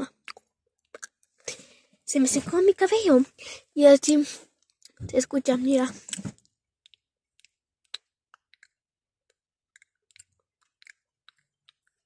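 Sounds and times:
person speaking: 0:05.0 - 0:06.1.

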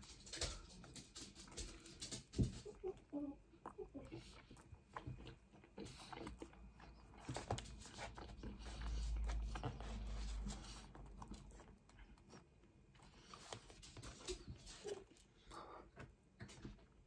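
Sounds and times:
person chewing: 0:02.6 - 0:16.0.

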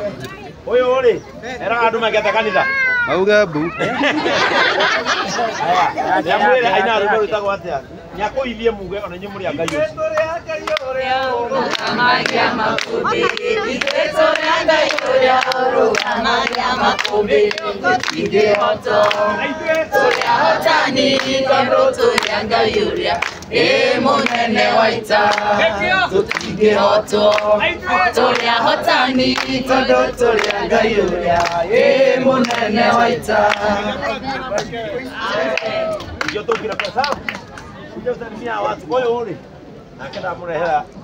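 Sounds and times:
crowd singing together: 0:03.9 - 0:06.9, 0:10.3 - 0:36.1
hands clapping in time: 0:09.6 - 0:20.4, 0:22.0 - 0:23.5, 0:25.2 - 0:25.5, 0:26.2 - 0:26.6, 0:27.2 - 0:27.5, 0:29.2 - 0:29.6, 0:30.3 - 0:31.6, 0:32.4 - 0:32.7, 0:35.5 - 0:37.8.

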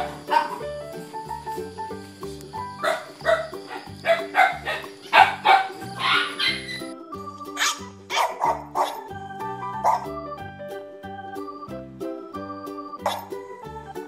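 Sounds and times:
puppies yipping and barking: 0:00.0 - 0:00.8, 0:02.6 - 0:09.1, 0:09.8 - 0:10.2, 0:13.0 - 0:13.4
children's music with steady beat: 0:00.0 - 0:14.0.

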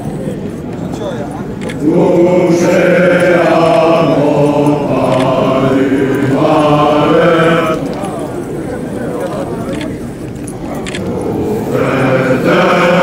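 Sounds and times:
men's choir singing marching song: 0:01.8 - 0:08.4, 0:10.9 - 0:13.0.

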